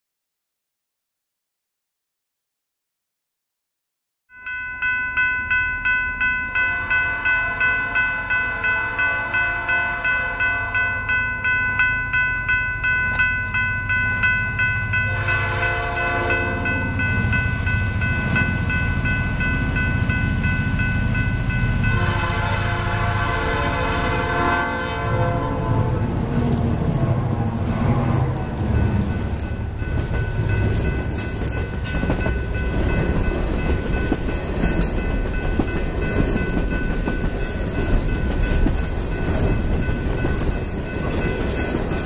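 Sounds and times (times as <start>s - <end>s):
locomotive bell ringing: 4.3s - 26.2s, 27.4s - 42.0s
diesel locomotive engine rumble: 5.8s - 42.0s
train horn: 6.6s - 11.0s, 15.0s - 16.8s, 21.8s - 28.6s.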